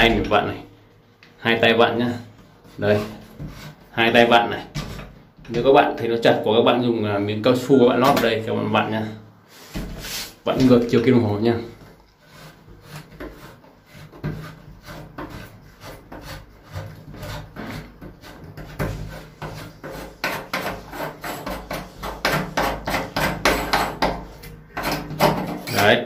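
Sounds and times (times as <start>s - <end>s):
hand scraping metal lock plate: 12.3s - 26.0s.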